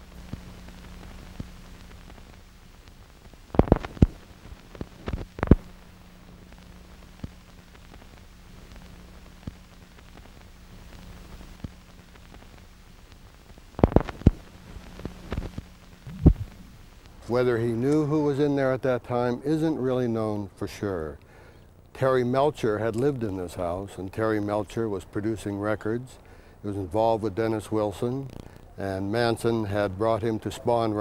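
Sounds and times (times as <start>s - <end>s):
low hum and hiss: 0.0s - 31.0s
sharp clicks and pops: 1.4s - 5.8s, 11.4s - 17.2s.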